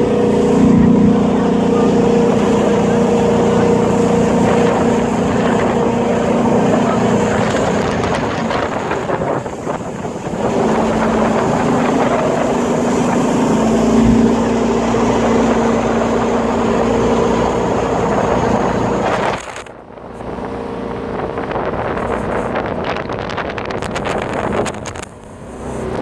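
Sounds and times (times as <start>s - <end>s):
boat engine drone: 0.0s - 26.0s
water rushing: 0.0s - 26.0s
wind on microphone: 0.0s - 26.0s.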